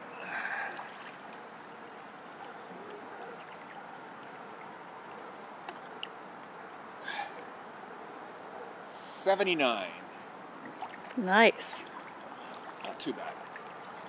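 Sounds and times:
water sloshing and lapping: 0.0 - 7.4, 10.5 - 14.0
water splash: 0.4 - 1.4, 10.6 - 13.8.

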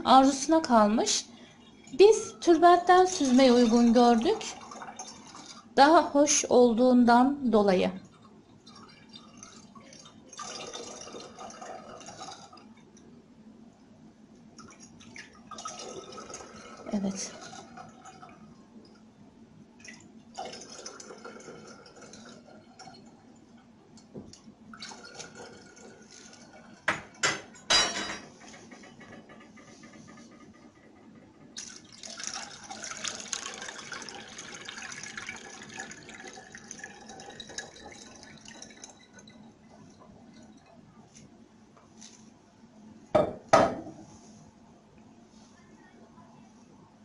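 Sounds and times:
liquid splashing and trickling: 3.0 - 5.8, 8.2 - 12.7, 31.6 - 40.8.

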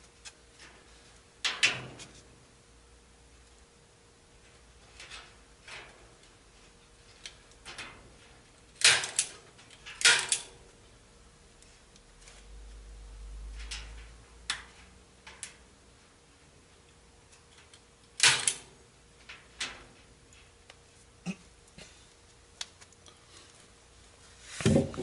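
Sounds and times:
wire mesh clicks and snaps: 4.4 - 6.4, 7.1 - 10.7, 13.4 - 15.7, 16.9 - 20.8, 22.6 - 23.1.

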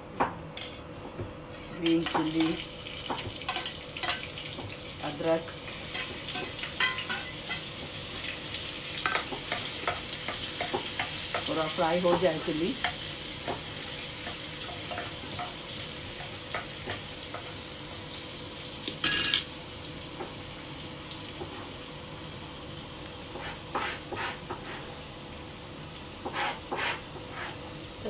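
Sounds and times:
spices sizzling in hot oil: 0.6 - 28.0
spoon clattering onto steel plate: 19.0 - 19.5.

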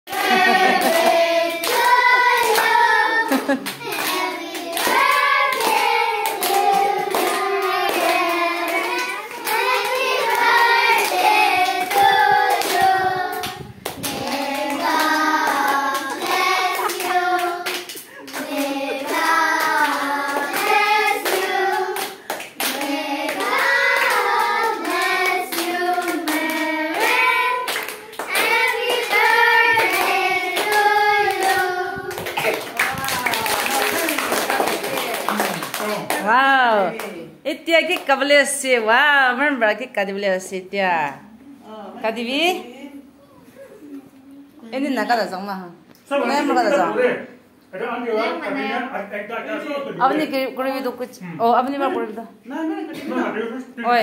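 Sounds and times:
children singing: 22.8 - 32.2
hands clapping: 31.4 - 36.3.

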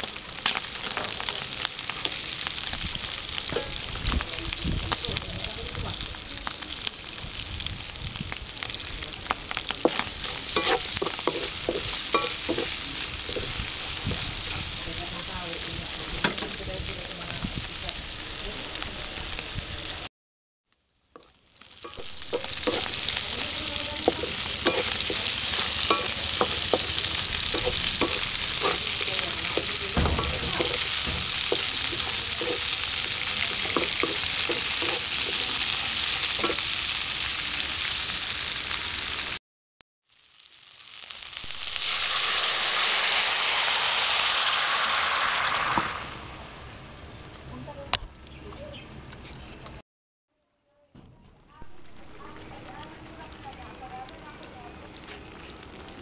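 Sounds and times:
food sizzling in oil in a wok: 0.0 - 20.1, 20.7 - 39.4, 40.0 - 47.4
spatula clicking and scraping pan: 9.7 - 13.5, 21.9 - 23.2, 24.0 - 35.5.

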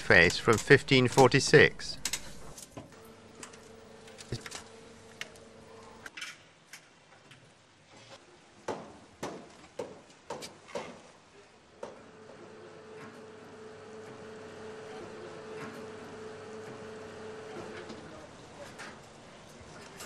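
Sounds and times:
steady hum: 12.0 - 18.6.

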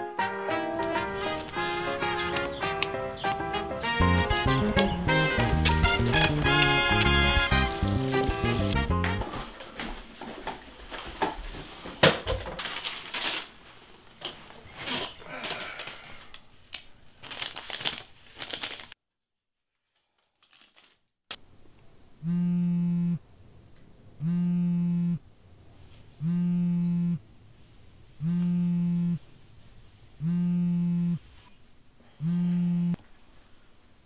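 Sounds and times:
paper rustling: 0.8 - 2.3, 4.6 - 19.0, 19.8 - 21.1
mobile phone buzzing: 22.2 - 23.2, 24.2 - 25.2, 26.2 - 27.2, 28.2 - 29.2, 30.2 - 31.2, 32.2 - 33.0.

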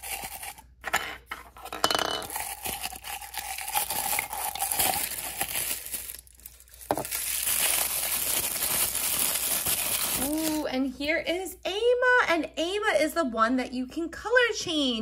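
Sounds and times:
plastic wrap crinkling: 2.3 - 10.7.

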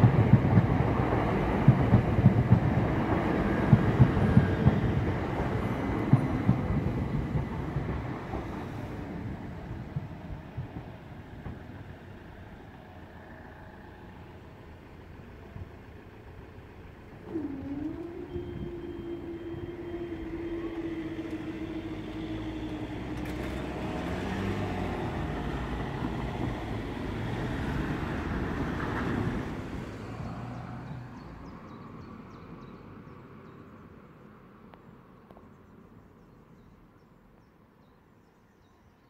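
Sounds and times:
low vehicle rumble: 0.0 - 37.0
held engine-like tone: 16.9 - 31.0.

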